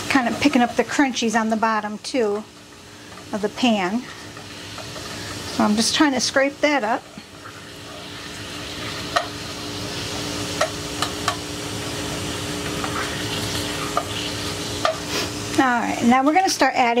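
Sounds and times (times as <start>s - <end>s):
stock sizzling in a pan: 0.0s - 17.0s
spoon knocking against pan: 9.1s - 9.4s, 10.6s - 11.4s
wooden spoon scraping a pan: 12.6s - 15.4s.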